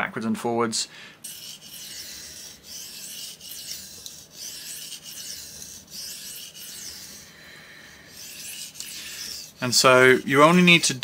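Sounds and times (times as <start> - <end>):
knife scraping on sharpening stone: 1.2 - 7.3, 8.1 - 10.3.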